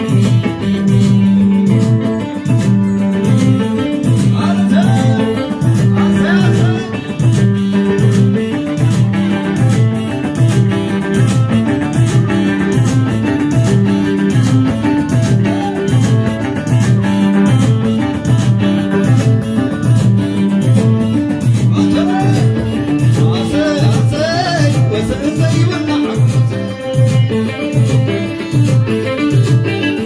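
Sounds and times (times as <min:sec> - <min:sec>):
plucked lyre and electric guitar: 0:00.0 - 0:30.0
steady low beat: 0:02.5 - 0:27.3
person singing wavering notes: 0:04.3 - 0:07.3.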